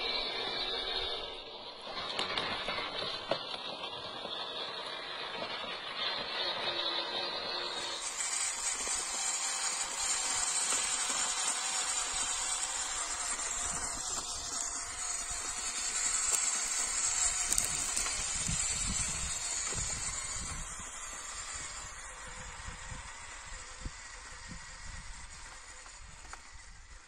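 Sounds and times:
toy car motor whirring: 0:00.0 - 0:27.0
tyres on stony dirt: 0:00.0 - 0:27.0.

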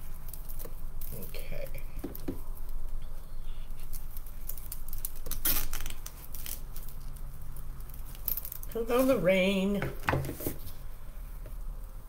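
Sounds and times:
mesh fabric rustling: 0:00.0 - 0:11.1.

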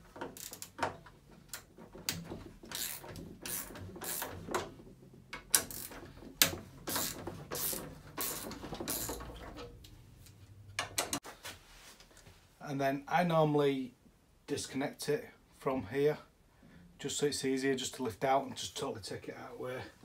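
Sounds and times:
ratchet clicking: 0:02.7 - 0:04.4, 0:05.3 - 0:09.3.

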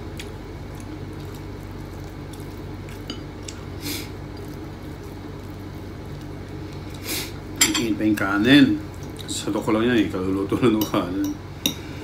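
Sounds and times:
chewing and squishing food: 0:00.0 - 0:07.6, 0:08.6 - 0:10.2
steady low hum: 0:00.0 - 0:12.0.

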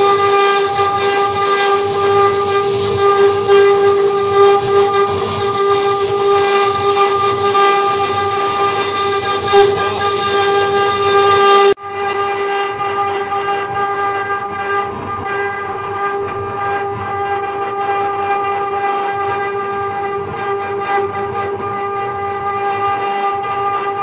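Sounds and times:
router spindle whining: 0:00.0 - 0:23.7.

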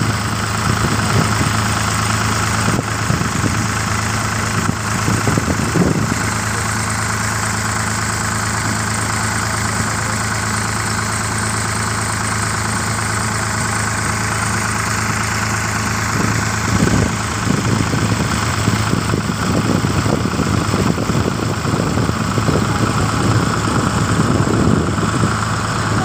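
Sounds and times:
wind buffeting microphone: 0:00.0 - 0:06.6, 0:14.0 - 0:26.0
boat engine humming: 0:00.0 - 0:26.0.

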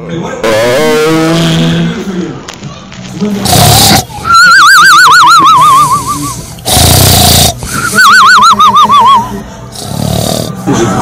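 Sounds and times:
cartoon snoring: 0:03.4 - 0:04.2, 0:06.6 - 0:07.6, 0:09.8 - 0:10.8.

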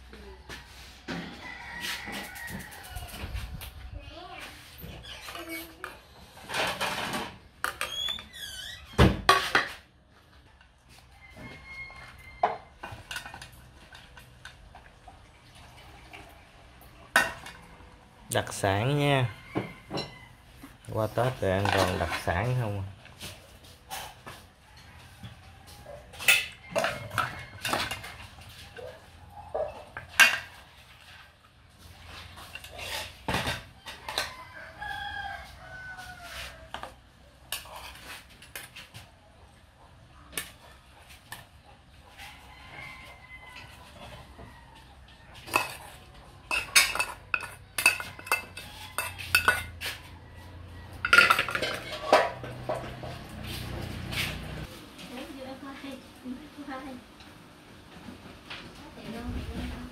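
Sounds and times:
utensils clinking against metal bowl: 0:12.0 - 0:15.1, 0:17.0 - 0:17.7, 0:18.3 - 0:31.2, 0:32.1 - 0:34.4, 0:37.5 - 0:38.9, 0:45.3 - 0:50.2, 0:50.9 - 0:54.4.

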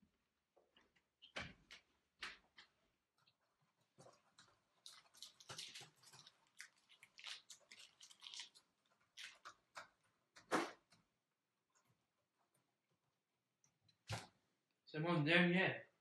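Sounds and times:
person chewing crunchy snack: 0:04.1 - 0:09.6.

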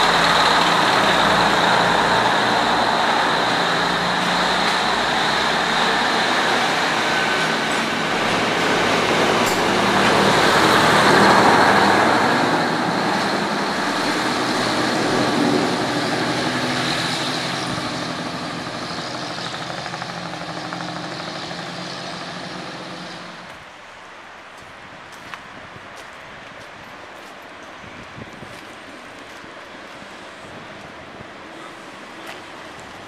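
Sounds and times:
train engine hum: 0:00.0 - 0:33.0
train wheels rumbling on rail: 0:00.0 - 0:33.0.

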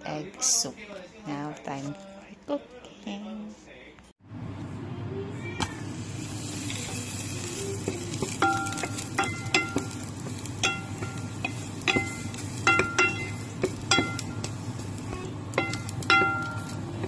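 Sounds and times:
food sizzling in hot oil: 0:05.7 - 0:17.0
plucked-string background music: 0:06.8 - 0:14.3.

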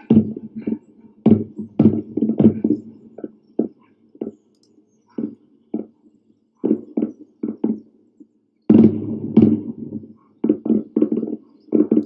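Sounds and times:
distant anti-aircraft booms: 0:00.0 - 0:03.8, 0:08.7 - 0:12.0.

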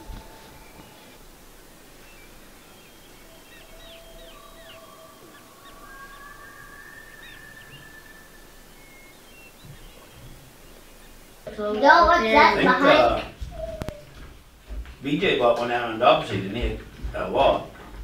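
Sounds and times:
birds chirping and whistling: 0:00.0 - 0:11.4, 0:12.6 - 0:14.3.

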